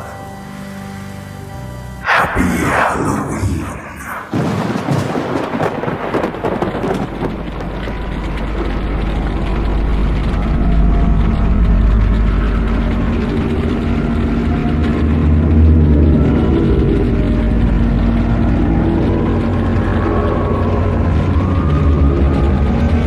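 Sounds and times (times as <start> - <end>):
thunder crashing and rumbling: 3.8 - 10.4
rain: 4.3 - 23.0.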